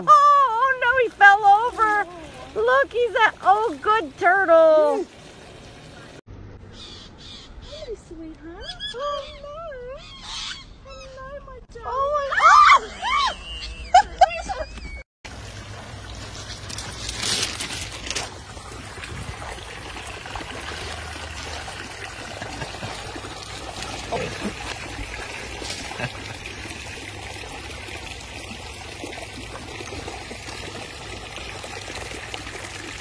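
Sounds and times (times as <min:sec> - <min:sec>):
water trickling and pouring: 0:00.0 - 0:06.2, 0:15.3 - 0:33.0.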